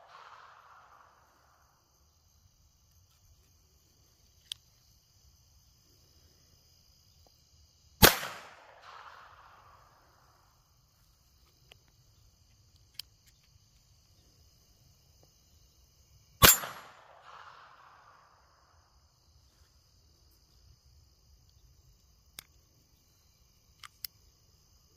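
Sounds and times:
crickets chirping: 0:00.0 - 0:24.9
gunshot crack with echo: 0:08.0 - 0:09.8, 0:16.4 - 0:18.1.

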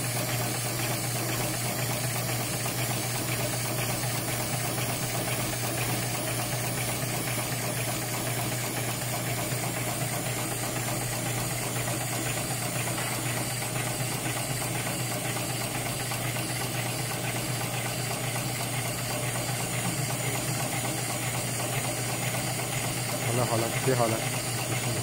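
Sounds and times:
sewing machine rattling: 0:00.0 - 0:25.0
steady hum: 0:08.6 - 0:25.0.

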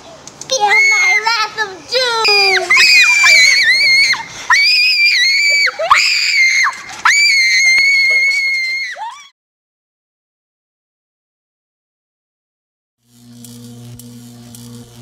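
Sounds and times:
girl screaming: 0:00.6 - 0:01.4, 0:02.0 - 0:09.3.

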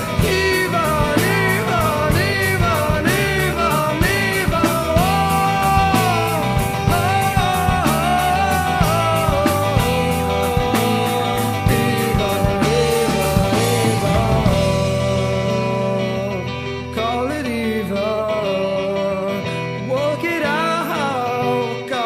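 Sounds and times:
drum and cymbal beat: 0:00.0 - 0:15.3
person singing: 0:00.0 - 0:22.0
rock band music: 0:00.0 - 0:22.0.

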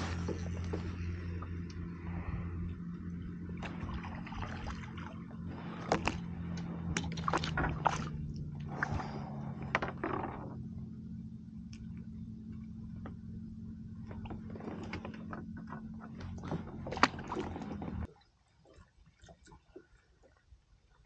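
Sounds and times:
steady low hum: 0:00.0 - 0:18.1
fish splashing in water: 0:03.5 - 0:09.4.

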